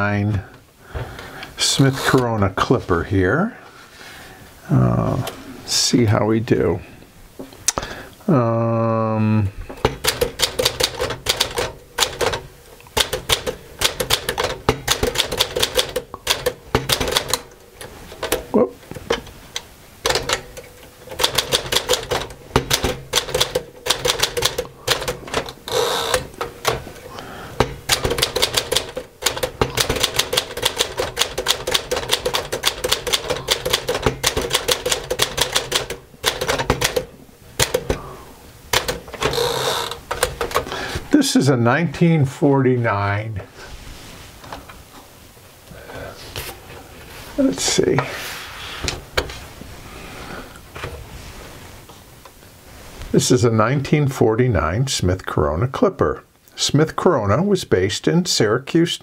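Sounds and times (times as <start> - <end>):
manual typewriter typing: 9.8 - 19.4, 20.0 - 26.9, 27.6 - 38.0, 38.7 - 40.8.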